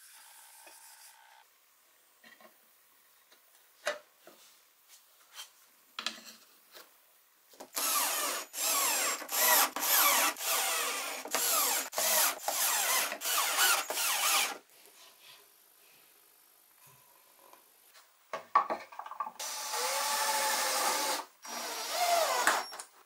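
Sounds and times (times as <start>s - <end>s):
cordless drill driving screws: 7.8s - 14.6s, 19.4s - 22.8s.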